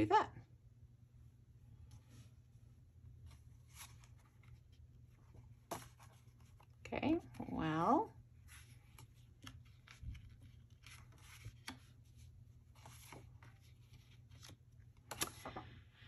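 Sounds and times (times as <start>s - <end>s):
paper rustling and tapping: 8.9s - 12.0s
paper clicks: 14.3s - 15.6s.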